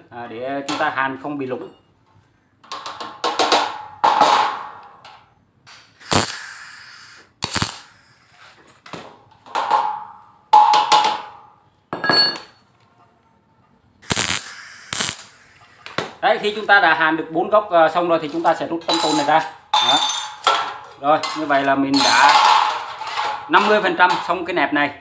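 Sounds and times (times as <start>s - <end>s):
welder crackling bursts: 6.0s - 8.6s, 14.0s - 16.6s
sharp metal knocks: 9.5s - 11.4s.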